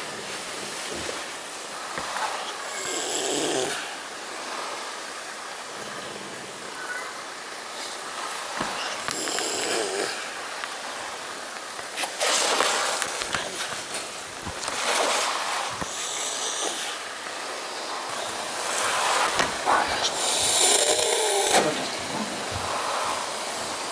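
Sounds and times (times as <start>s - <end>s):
cat hissing: 2.0s - 4.0s, 7.8s - 10.4s, 12.0s - 23.4s
cat growling: 2.2s - 4.0s, 8.6s - 10.4s, 19.6s - 22.5s.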